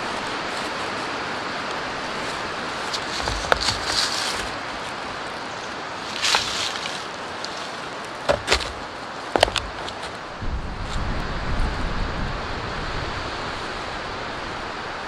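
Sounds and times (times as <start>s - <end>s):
steady rushing background noise: 0.0s - 15.0s
rock knocking a wooden stake: 2.9s - 4.5s, 8.3s - 10.2s.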